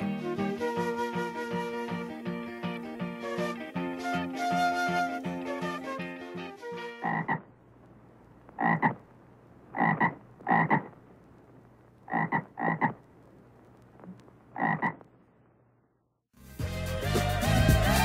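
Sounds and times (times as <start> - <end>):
music: 0.0 - 7.2, 16.3 - 18.0
frog croaking: 7.0 - 7.5, 8.5 - 9.1, 9.7 - 11.0, 12.0 - 13.1, 14.0 - 15.1.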